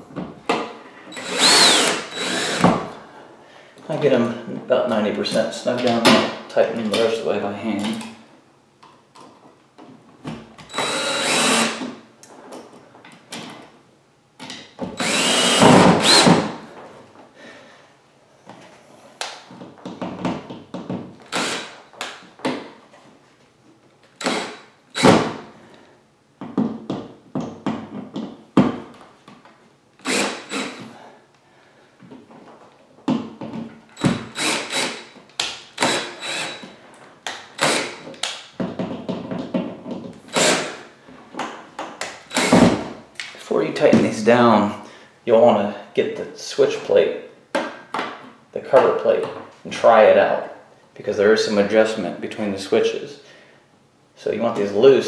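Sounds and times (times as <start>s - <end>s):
cordless drill driving screws: 1.1s - 2.8s, 10.7s - 11.9s, 15.0s - 16.6s, 21.3s - 21.8s, 24.2s - 25.4s, 30.0s - 30.9s, 34.0s - 35.1s, 35.8s - 36.8s, 37.6s - 38.0s, 40.3s - 40.8s, 42.3s - 42.8s.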